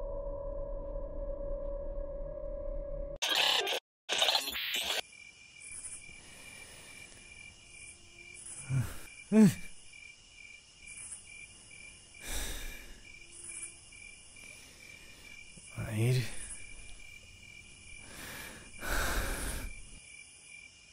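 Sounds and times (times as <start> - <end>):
digital glitch noise: 3.2 - 5.0
insect chirping: 4.3 - 20.9.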